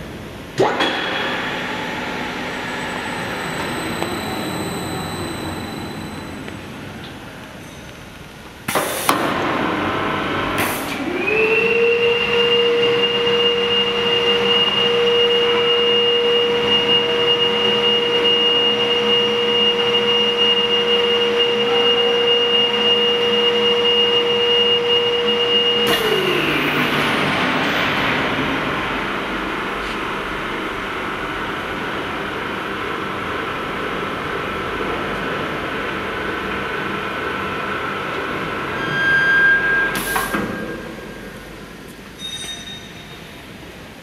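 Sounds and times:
electric drive whine: 1.2 - 7.5.

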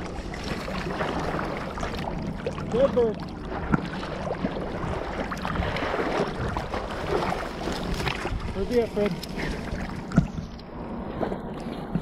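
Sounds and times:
water sloshing and splashing: 0.0 - 12.0.

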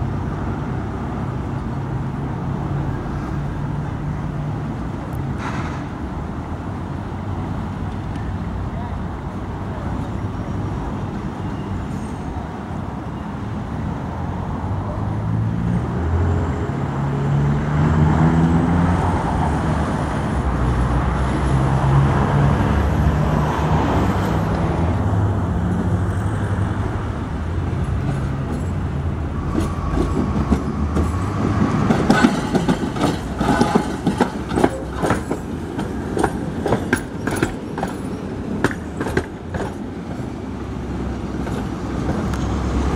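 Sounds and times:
street traffic: 0.0 - 42.9
tram passing: 0.0 - 42.9
wheels clattering over rail joints: 27.7 - 42.9.

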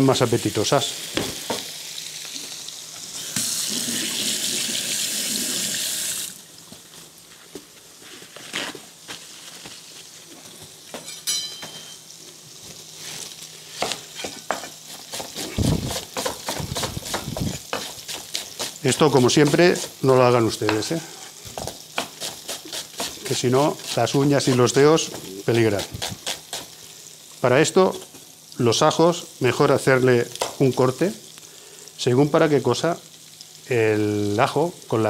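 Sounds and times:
kitchen tap running: 0.8 - 6.5, 14.5 - 28.0
fish frying in a pan: 12.0 - 35.0
knife tapping on cutting board: 16.2 - 17.9.

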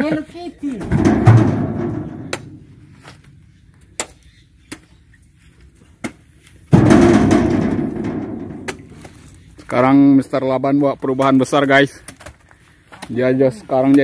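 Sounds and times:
heavy thuds in truck bed: 0.8 - 2.9, 6.7 - 9.1.

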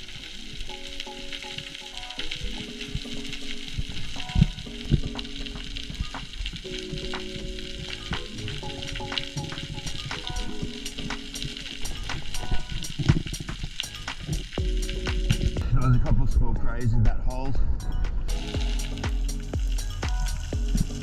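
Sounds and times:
snapping shrimp crackling underwater: 0.0 - 15.6
background music of held chords: 0.0 - 21.0.

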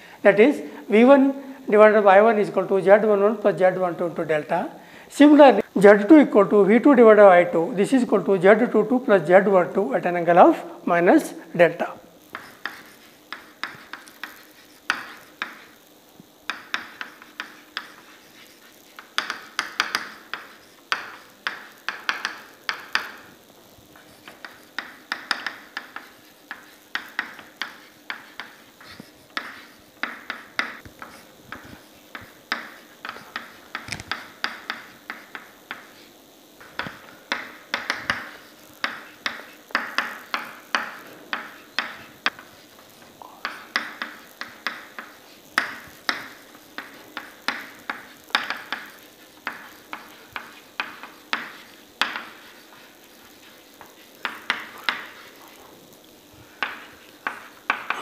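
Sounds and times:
chalk tapping on a chalkboard: 12.2 - 15.8, 16.4 - 23.3, 24.0 - 55.7, 56.5 - 58.0.

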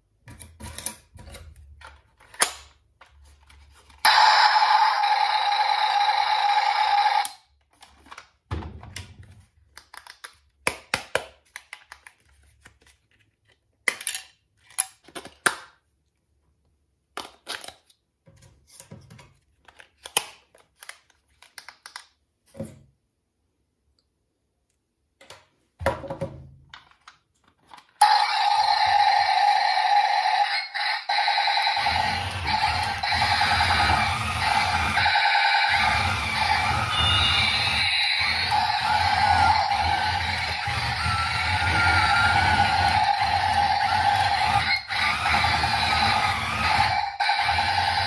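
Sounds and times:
toy electronic sound effect: 4.0 - 7.4, 28.0 - 48.0.

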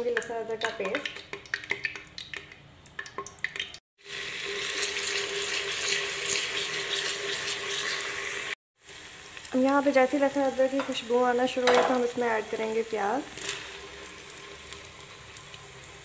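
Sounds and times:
paste sizzling in hot oil: 4.0 - 16.0.

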